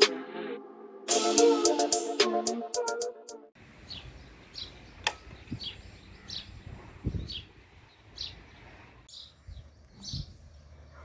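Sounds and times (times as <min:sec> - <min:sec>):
bird chirping: 0:03.6 - 0:11.0.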